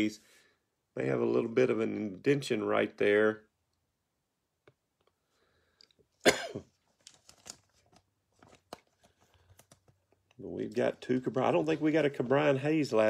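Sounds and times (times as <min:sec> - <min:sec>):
person coughing: 0:06.2 - 0:06.8
plastic wrapper crinkling: 0:06.8 - 0:12.6.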